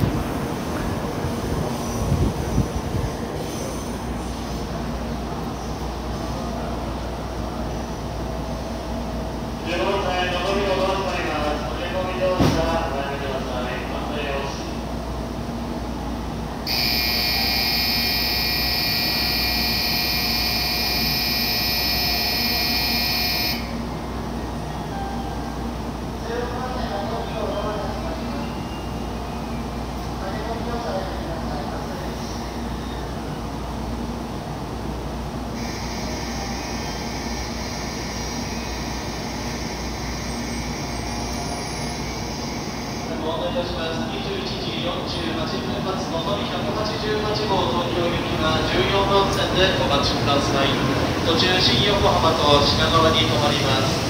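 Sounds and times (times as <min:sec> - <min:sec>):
platform departure bell ringing: 0:16.6 - 0:30.7, 0:35.6 - 0:54.0.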